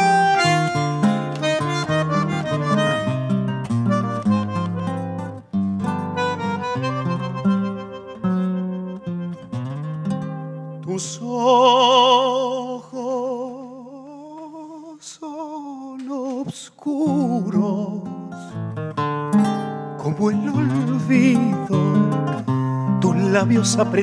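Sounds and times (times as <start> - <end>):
bandoneon melody with vibrato: 0.0 - 10.9
plucked guitar notes and chords: 0.0 - 11.3, 17.2 - 24.0.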